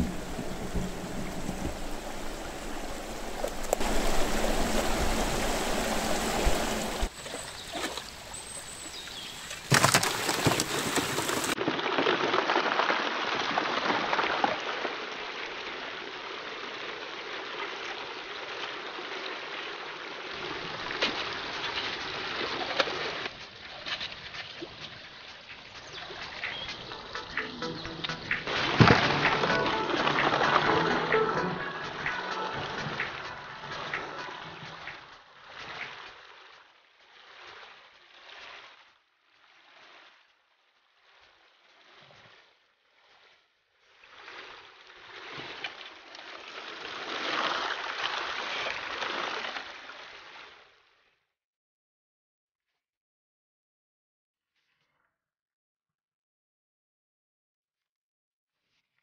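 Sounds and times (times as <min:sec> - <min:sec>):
creek water rushing over stones: 0:00.0 - 0:38.8, 0:44.0 - 0:50.7
water pouring down metal sluice: 0:09.7 - 0:27.0, 0:45.6 - 0:50.3.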